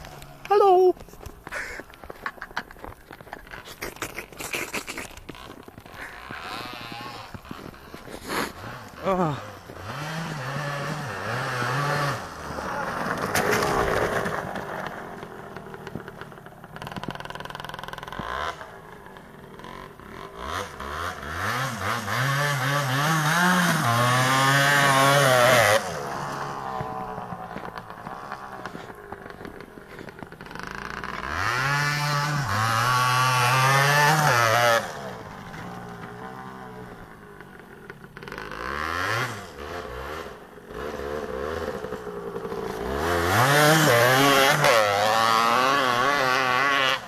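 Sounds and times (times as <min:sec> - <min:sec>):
dirt bike engine revving: 0:03.1 - 0:47.0.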